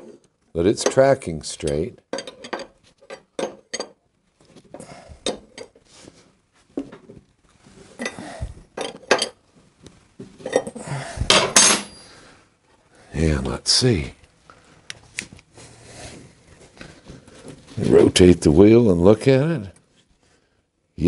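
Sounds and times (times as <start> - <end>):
metal tools clinking and clanking: 0.0 - 4.0, 4.7 - 5.8, 8.0 - 9.4, 10.4 - 12.1.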